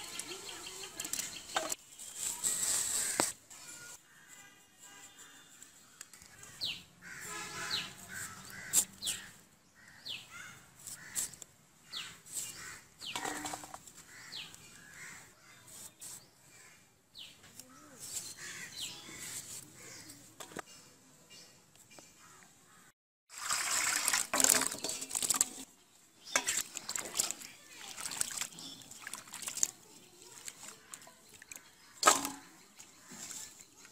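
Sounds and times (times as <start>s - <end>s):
potato wedges dropping into steel bowl: 32.0s - 32.6s.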